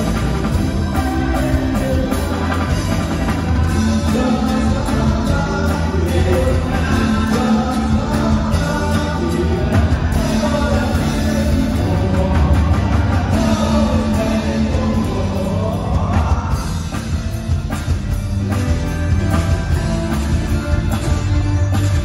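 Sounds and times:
person singing: 0.0 - 17.8
live band with guitars and bass: 0.0 - 22.0.

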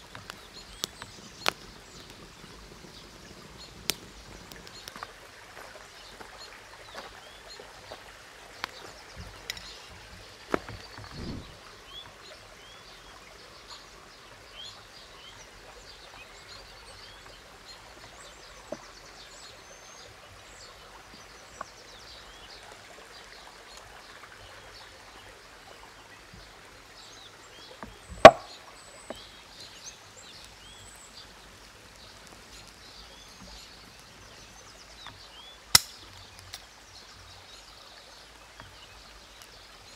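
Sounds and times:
birds chirping: 8.6 - 13.8, 26.4 - 39.9
stream rushing: 11.1 - 11.9.

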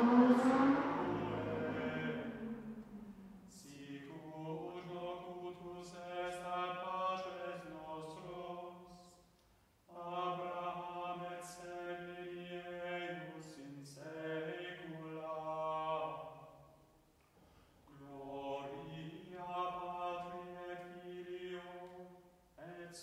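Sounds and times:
male voices chanting: 0.0 - 8.4.

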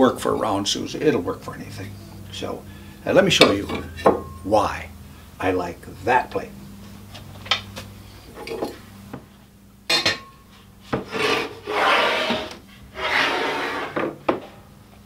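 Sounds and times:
wooden shelf scraping on a surface: 10.9 - 14.6.

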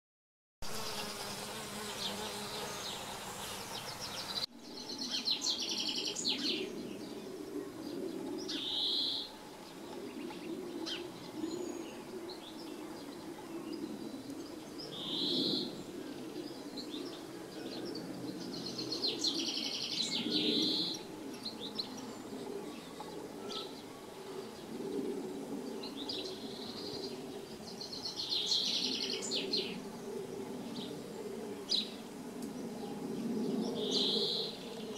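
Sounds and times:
bees buzzing: 0.6 - 4.5.

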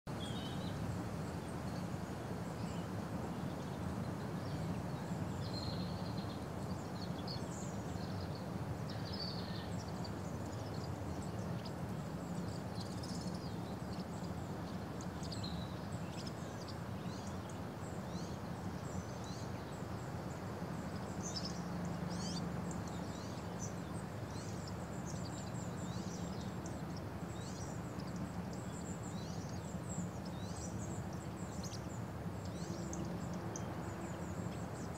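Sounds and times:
low background noise: 0.1 - 34.9
small birds chirping: 0.1 - 34.9.

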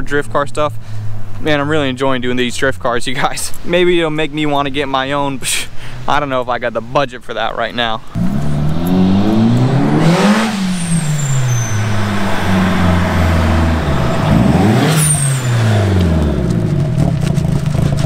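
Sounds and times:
car engine revving past: 8.1 - 17.5.

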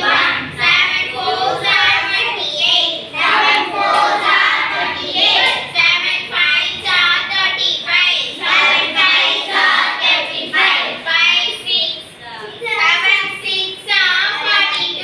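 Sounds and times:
girls chanting in unison: 0.0 - 7.6, 8.2 - 11.6.

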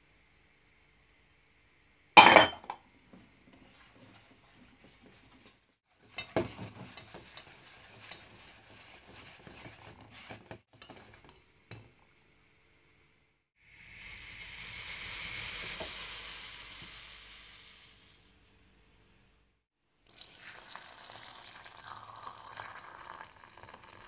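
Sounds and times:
whisk scraping metal bowl: 3.1 - 11.4.

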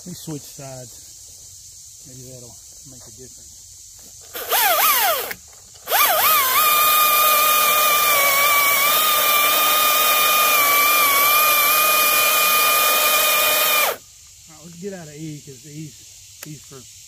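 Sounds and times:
chain cutting through log: 4.2 - 14.0
chainsaw whining: 4.2 - 14.0.

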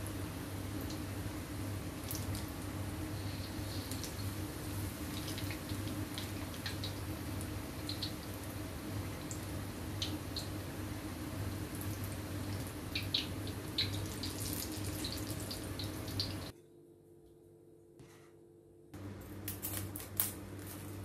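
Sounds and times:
food sizzling in hot oil: 0.1 - 16.5.

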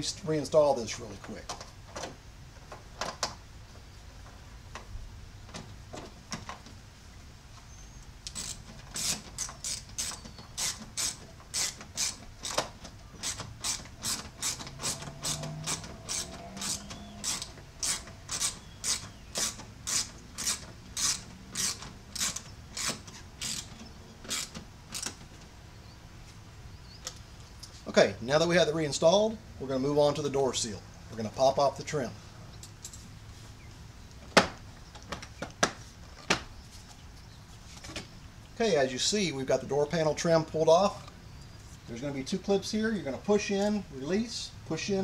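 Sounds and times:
hand ratchet clicking: 8.2 - 25.2.

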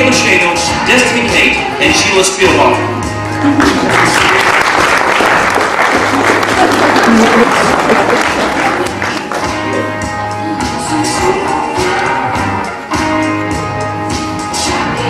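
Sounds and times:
background music: 0.0 - 15.0
audience applauding: 3.4 - 9.9.

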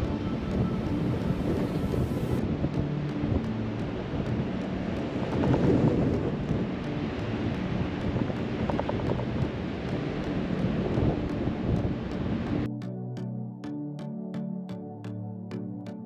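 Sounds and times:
truck driving on sand: 0.0 - 12.7
wind buffeting microphone: 0.0 - 12.7.

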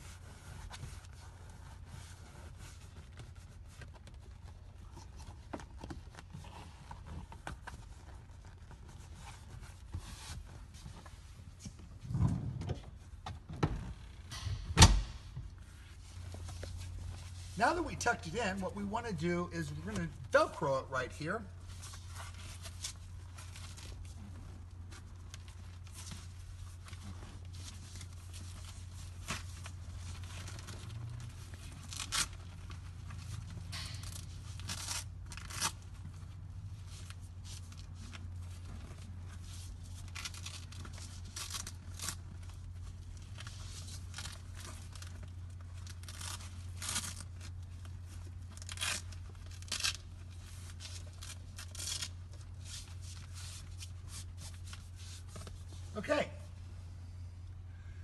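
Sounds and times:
steady low hum: 0.0 - 58.0
vinyl rustling: 0.1 - 13.2, 15.3 - 56.1
velcro strips ripping apart: 27.4 - 36.3, 39.4 - 55.3.

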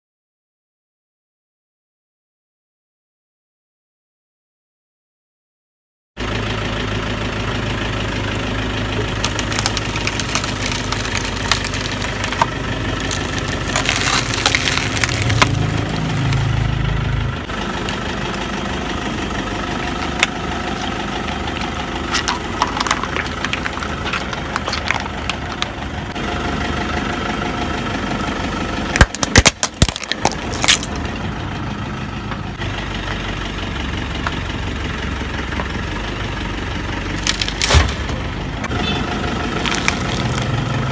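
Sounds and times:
car engine idling: 6.2 - 40.9
tyre crushing plastic objects: 9.0 - 16.7, 20.0 - 25.8, 28.9 - 31.0, 37.2 - 38.3, 39.6 - 40.7.

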